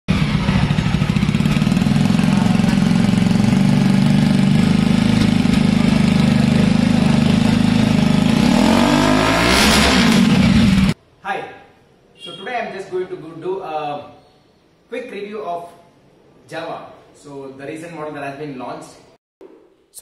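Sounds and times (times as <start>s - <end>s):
motorcycle engine idling: 0.1s - 9.2s.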